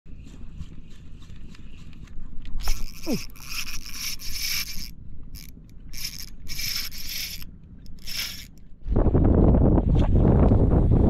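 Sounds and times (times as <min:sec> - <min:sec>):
fishing reel whirring: 0:02.6 - 0:08.7.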